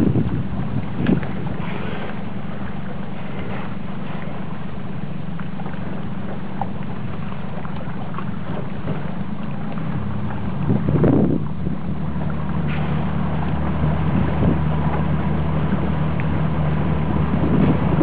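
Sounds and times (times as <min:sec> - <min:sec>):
wind noise on microphone: 0:00.0 - 0:04.4, 0:08.0 - 0:18.0
boat engine humming: 0:00.0 - 0:18.0.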